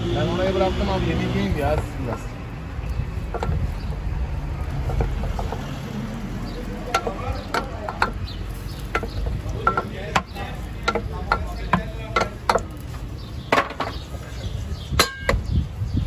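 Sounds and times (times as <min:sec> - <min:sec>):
utensils knocking on metal pots: 0:01.6 - 0:02.4, 0:03.2 - 0:04.0, 0:04.6 - 0:14.1, 0:14.9 - 0:15.5.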